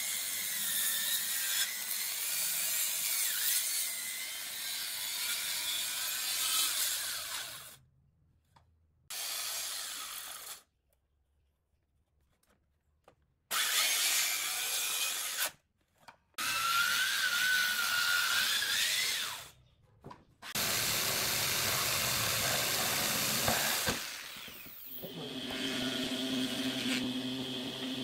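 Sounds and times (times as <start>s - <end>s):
circular saw cutting wood: 9.1s - 10.6s, 16.4s - 19.6s, 20.4s - 28.0s.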